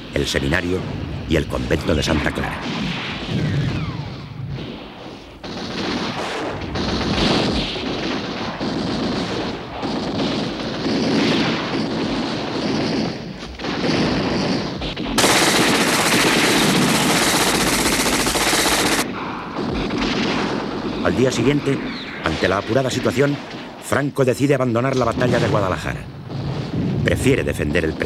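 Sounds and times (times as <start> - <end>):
rifle fire: 2.4 - 23.9, 25.2 - 28.0
machine-gun fire: 2.6 - 21.6.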